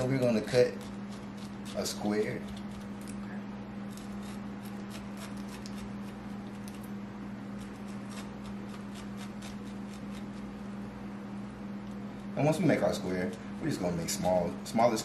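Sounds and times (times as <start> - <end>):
knife cutting pineapple: 0.0 - 3.2, 3.8 - 10.6
steady low hum: 0.0 - 15.0.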